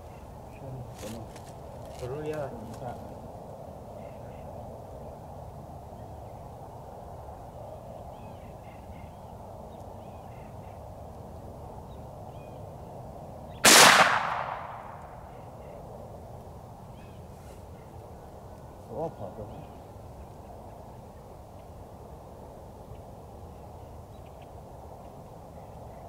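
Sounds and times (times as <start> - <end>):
faint bird calls: 3.9 - 5.2, 7.6 - 10.9, 14.5 - 15.9, 16.9 - 21.8
rifle shot echoing: 13.6 - 15.4.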